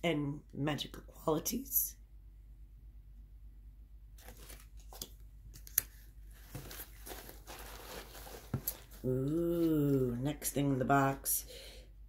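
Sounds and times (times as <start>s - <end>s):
shredded paper rustling: 4.2s - 5.1s, 6.3s - 10.1s.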